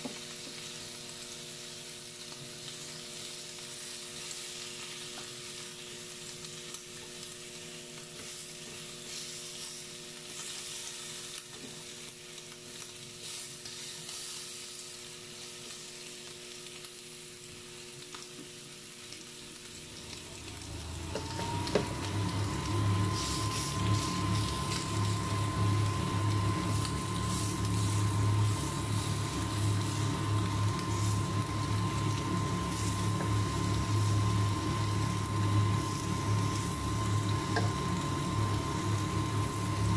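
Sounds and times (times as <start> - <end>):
meat sizzling on a grill: 0.0 - 39.9
motor whining: 20.1 - 39.9.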